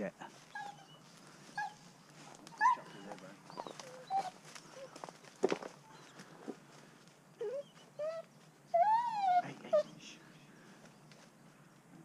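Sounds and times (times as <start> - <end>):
dog whining: 0.5 - 1.0, 2.5 - 4.9, 7.4 - 10.0.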